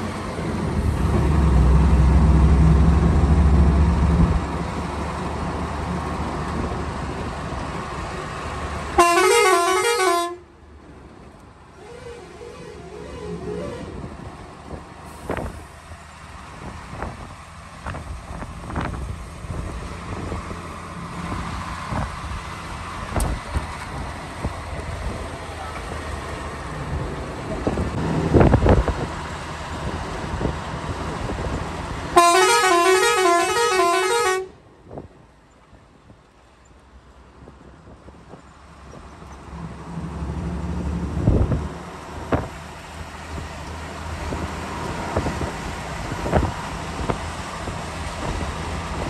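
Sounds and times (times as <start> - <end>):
truck engine droning: 0.0 - 34.8
musical truck horn: 9.0 - 10.5, 11.8 - 14.0, 32.2 - 34.6.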